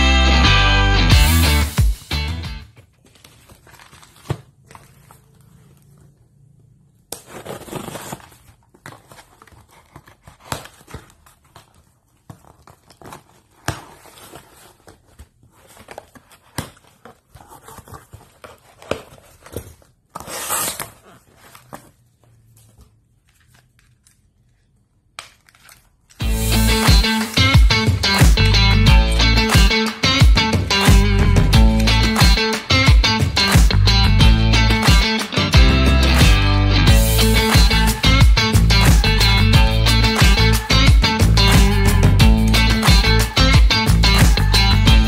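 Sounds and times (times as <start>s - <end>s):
bubble-wrap mailer crinkling: 2.7s - 6.3s, 7.0s - 26.5s
tape and cardboard tearing: 7.1s - 21.8s.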